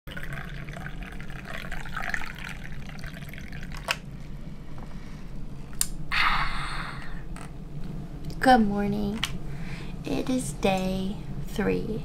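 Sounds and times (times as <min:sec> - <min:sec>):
water running and trickling: 0:00.1 - 0:04.0.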